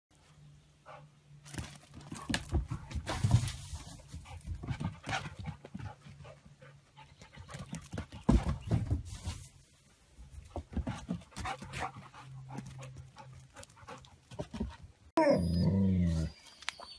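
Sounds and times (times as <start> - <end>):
dogs panting: 4.1 - 8.3, 10.6 - 15.0.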